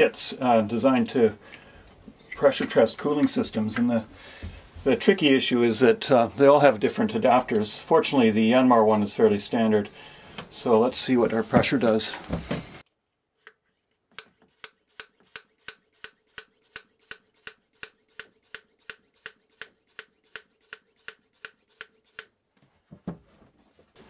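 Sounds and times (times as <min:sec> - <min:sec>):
hand pump strokes: 0:14.2 - 0:22.3.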